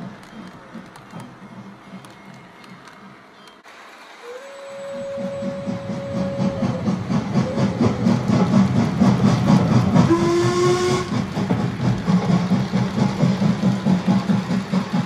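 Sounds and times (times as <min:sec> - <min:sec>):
rhythmic train running sound: 0:00.0 - 0:15.0
train whistle: 0:04.2 - 0:08.6, 0:10.0 - 0:11.3.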